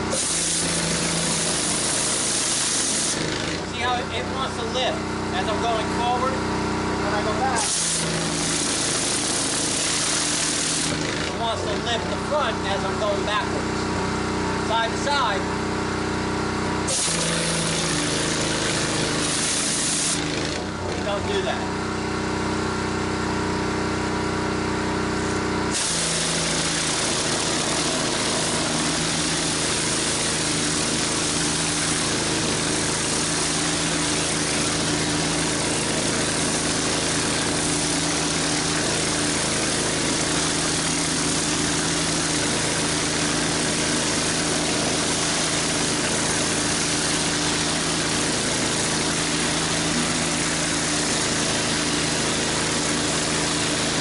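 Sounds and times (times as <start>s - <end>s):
spray jets hissing: 0.0s - 3.3s, 7.2s - 11.0s, 16.9s - 20.3s, 25.7s - 54.0s
pressure washer engine hum: 0.0s - 54.0s.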